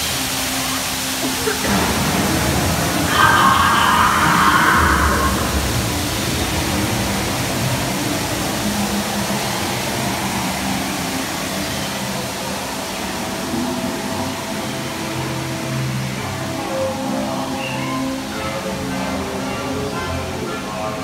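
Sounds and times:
ride machinery rushing noise: 1.1 - 11.2.

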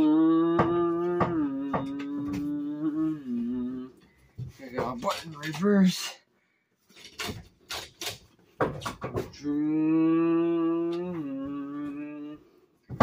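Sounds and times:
boy humming engine noise: 0.0 - 4.0, 9.4 - 12.4.

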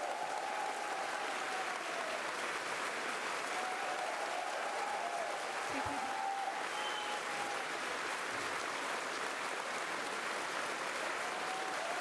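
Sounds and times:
audience applauding: 0.0 - 12.0
whistle-like tone: 6.7 - 7.2.

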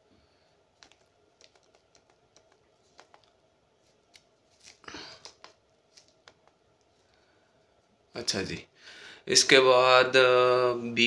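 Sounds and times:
faint finger clicks and taps: 0.8 - 3.4.

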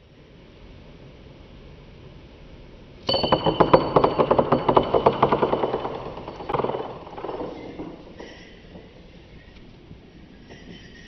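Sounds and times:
coin spinning on wooden table: 3.1 - 8.9.

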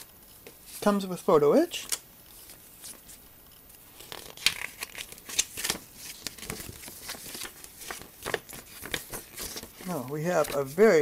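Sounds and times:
paper and plastic bags rustling: 4.0 - 11.0.

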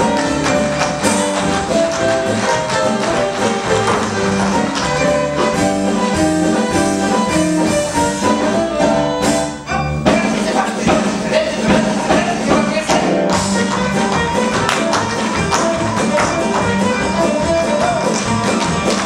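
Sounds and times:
tap shoes clicking: 0.0 - 6.3, 12.1 - 19.0
band playing jazzy show tune: 0.0 - 19.0.

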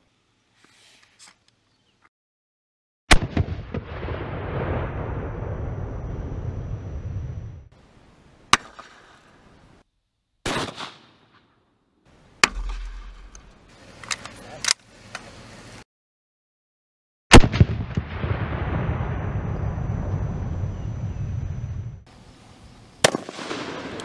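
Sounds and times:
rifle shot with long echo: 3.1 - 6.0, 10.4 - 11.5, 17.3 - 19.8, 23.0 - 24.0
low rumble: 3.9 - 7.7, 17.6 - 22.1.

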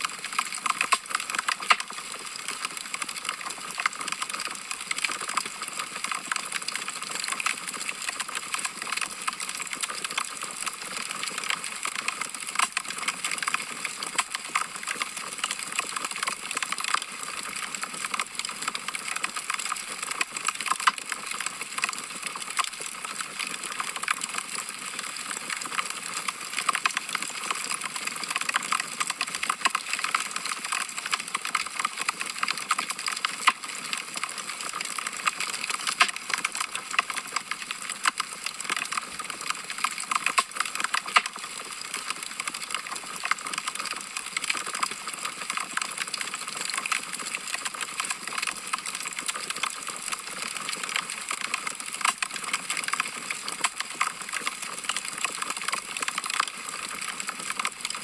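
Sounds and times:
wood fire crackling: 0.4 - 2.3.

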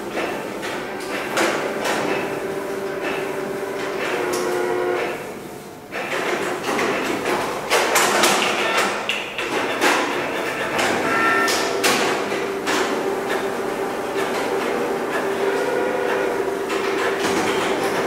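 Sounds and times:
printers clicking and knocking: 0.0 - 5.2, 5.9 - 18.0
steady motor hum: 0.0 - 5.9, 10.3 - 18.0
high-pitched printer whine: 0.2 - 6.3, 8.6 - 18.0.

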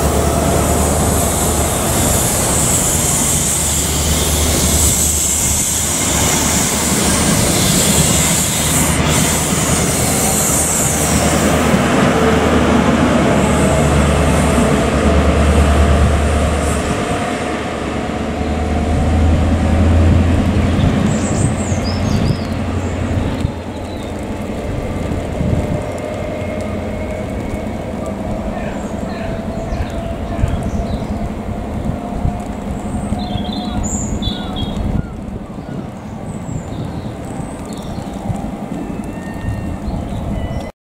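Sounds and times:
diesel train engine drone: 0.0 - 40.7
train wheels rolling: 0.0 - 40.7
wheels squealing on rail: 0.0 - 40.7.

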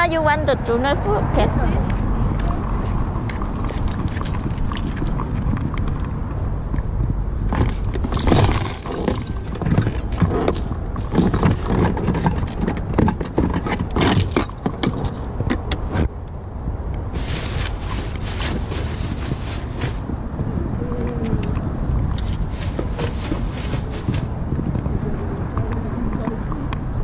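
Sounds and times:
low wind: 0.0 - 27.0
traffic rumble: 0.0 - 27.0
cans and packets being handled: 17.2 - 20.0, 22.2 - 24.3.

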